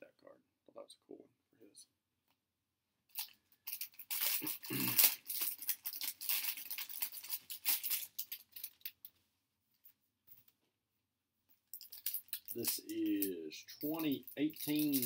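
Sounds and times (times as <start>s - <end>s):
plastic wrapper crinkling and tearing: 3.1s - 9.1s, 11.8s - 15.0s.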